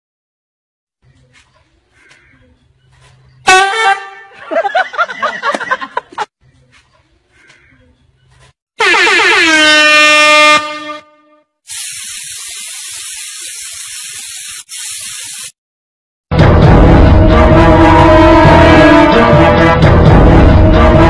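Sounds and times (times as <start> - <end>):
steady hiss: 11.7 - 15.5.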